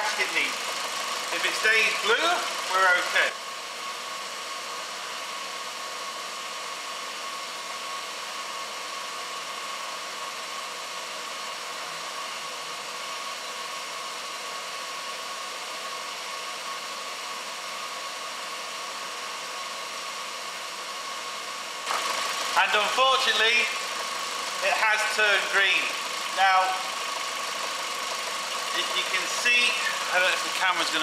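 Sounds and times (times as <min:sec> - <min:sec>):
engine rushing hiss: 0:21.8 - 0:31.0.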